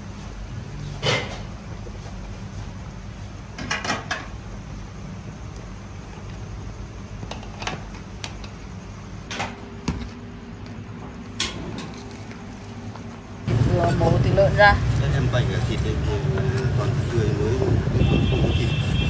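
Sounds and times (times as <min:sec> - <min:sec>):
kitchen clicks and knocks: 0:03.6 - 0:04.3
steady low hum: 0:04.2 - 0:19.0.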